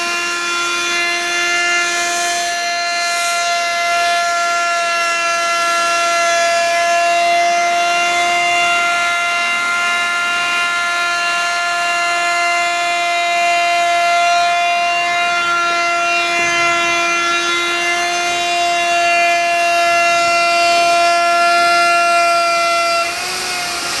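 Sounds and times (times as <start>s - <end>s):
electric router whining: 0.0s - 24.0s.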